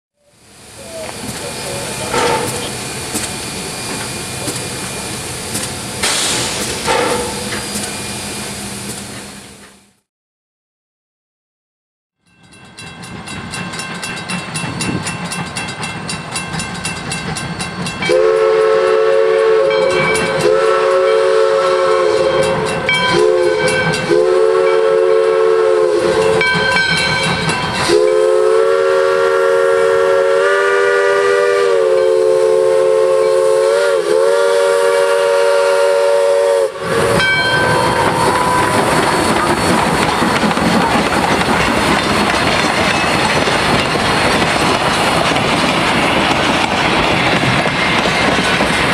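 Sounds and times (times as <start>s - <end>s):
steam locomotive whistle: 0.2s - 9.6s, 18.0s - 40.5s
locomotive exhaust: 0.2s - 9.7s, 18.1s - 26.8s, 27.4s - 48.9s
train wheels on rails: 0.3s - 10.1s, 12.3s - 48.9s
bell ringing: 12.2s - 18.2s, 19.7s - 20.5s, 22.2s - 24.1s, 26.2s - 28.0s, 37.2s - 38.7s.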